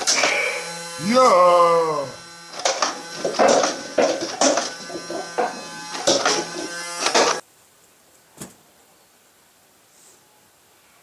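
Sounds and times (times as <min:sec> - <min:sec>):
sharp bursts: 0:00.0 - 0:07.4
toy gun motor buzzing: 0:00.0 - 0:07.4.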